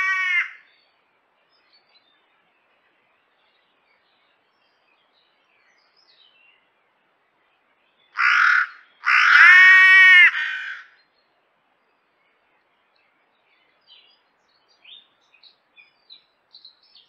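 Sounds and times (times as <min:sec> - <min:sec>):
crow cawing: 0:00.0 - 0:00.6, 0:08.2 - 0:11.0.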